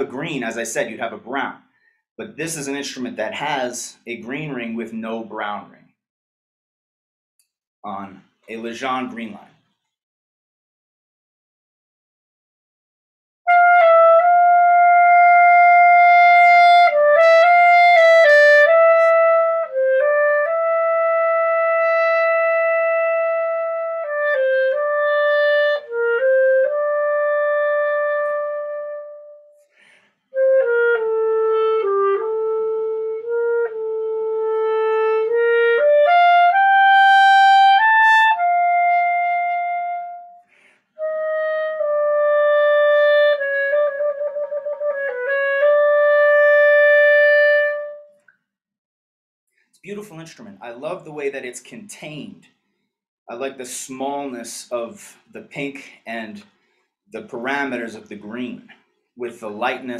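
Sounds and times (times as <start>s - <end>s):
solo clarinet: 13.5s - 29.6s, 30.3s - 48.2s.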